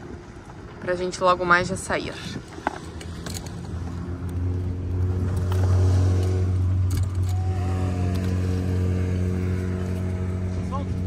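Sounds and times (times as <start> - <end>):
boat engine running: 2.9 - 11.0.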